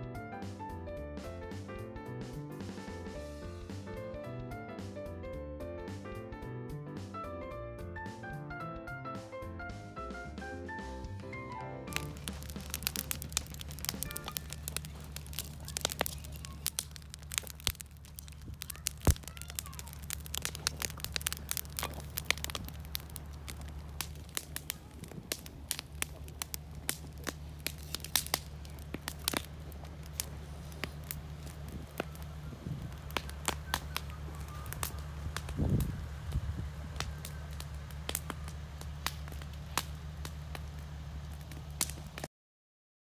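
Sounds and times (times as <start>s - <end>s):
campfire crackling and popping: 11.1s - 42.3s
low hum: 11.9s - 42.2s.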